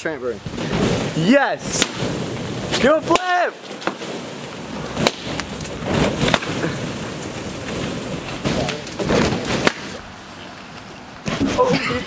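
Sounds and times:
balloons rubbing and knocking: 0:03.8 - 0:10.0.

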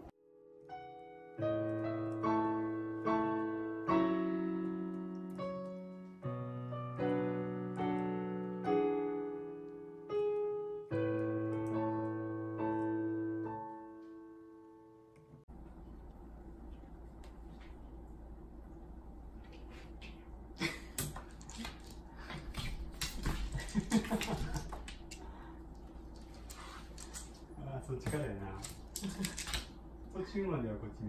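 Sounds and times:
slow piano music: 0:00.0 - 0:15.5.

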